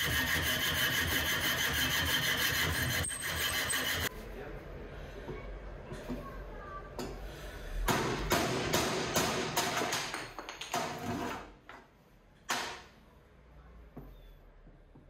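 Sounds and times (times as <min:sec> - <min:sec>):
hammer striking chisel into wood: 0:07.9 - 0:10.2.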